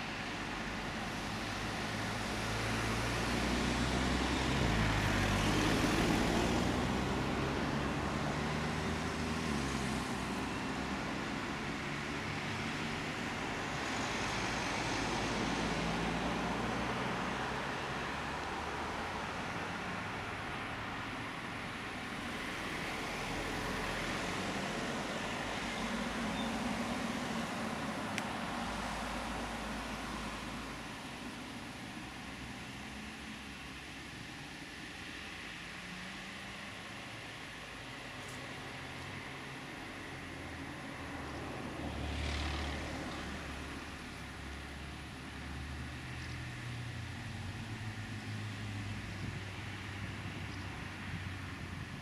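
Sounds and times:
tyres hissing on road: 0:00.0 - 0:52.0
vehicle rumble: 0:00.0 - 0:52.0
vehicle driving past: 0:41.1 - 0:44.1.

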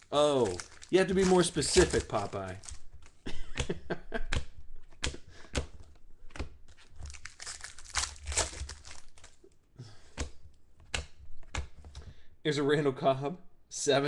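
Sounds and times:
plastic wrapper crinkling and tearing: 0:00.0 - 0:03.2, 0:06.7 - 0:09.5
cards snapping and clicking: 0:00.6 - 0:09.4, 0:10.1 - 0:12.1.

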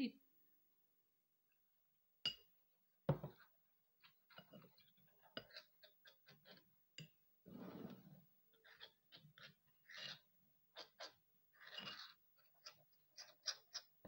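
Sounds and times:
metal spoon scraping ceramic bowl: 0:04.3 - 0:06.6, 0:07.5 - 0:13.9.

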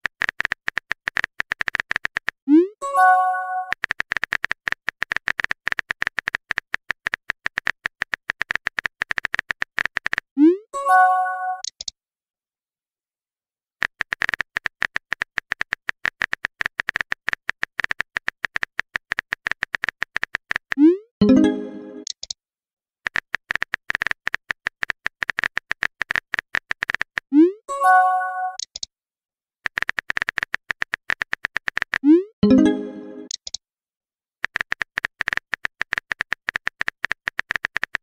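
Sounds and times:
message sent chime: 0:02.8 - 0:03.7, 0:10.8 - 0:11.7, 0:21.2 - 0:22.1, 0:27.7 - 0:28.6, 0:32.4 - 0:33.3
phone keyboard clicks: 0:11.6 - 0:11.9, 0:23.1 - 0:27.2, 0:29.6 - 0:32.0, 0:33.2 - 0:33.6.

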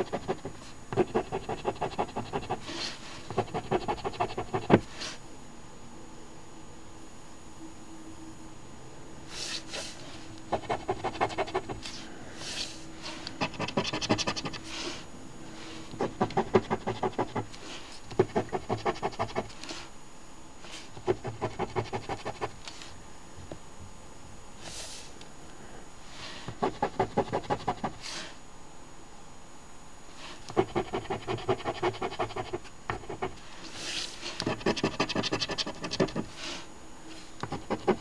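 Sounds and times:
coin scratching lottery ticket: 0:00.0 - 0:02.6, 0:03.3 - 0:04.7, 0:10.6 - 0:11.8, 0:13.4 - 0:14.6, 0:16.0 - 0:17.5, 0:18.2 - 0:19.6, 0:21.0 - 0:22.5, 0:30.5 - 0:33.4, 0:34.4 - 0:36.3, 0:37.5 - 0:38.0.

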